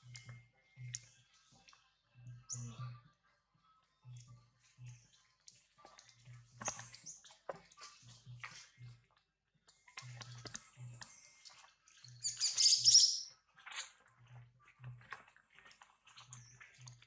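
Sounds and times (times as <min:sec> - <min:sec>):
baby monkey squealing: 0:12.2 - 0:13.2.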